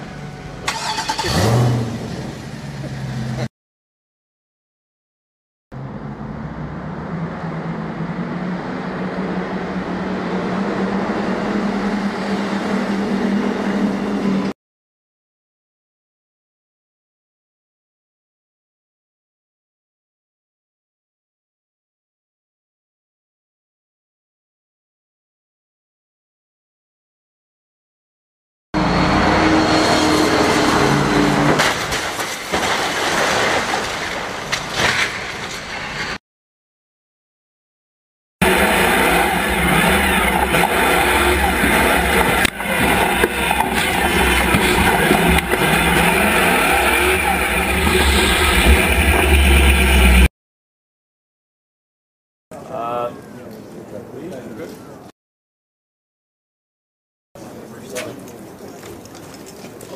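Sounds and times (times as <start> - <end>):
vehicle engine humming: 0.0 - 3.5, 5.7 - 14.6, 28.8 - 31.9, 38.4 - 50.3.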